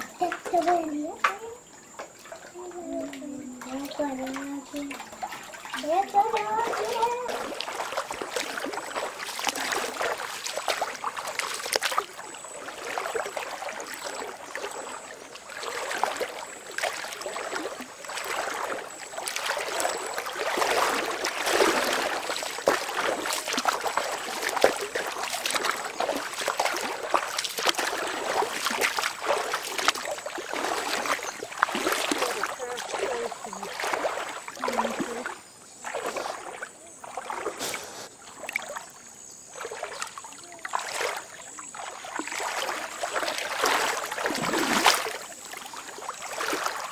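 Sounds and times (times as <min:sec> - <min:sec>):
water splashing and trickling: 0:00.0 - 0:46.9.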